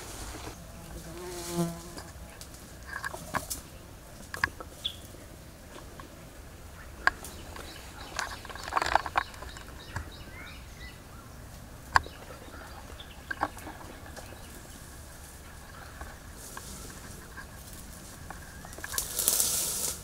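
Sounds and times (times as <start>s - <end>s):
rustling of brush: 0.0s - 20.0s
twigs snapping and crackling: 1.9s - 5.1s, 7.0s - 10.1s, 13.2s - 20.0s.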